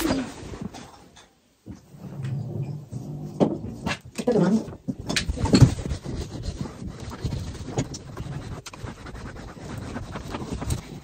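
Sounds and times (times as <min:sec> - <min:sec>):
fabric rustling: 0:05.2 - 0:11.0.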